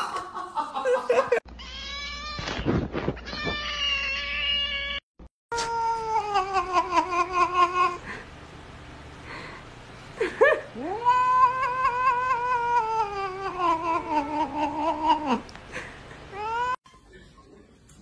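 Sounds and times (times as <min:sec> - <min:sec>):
cat yowling: 0:10.8 - 0:15.4.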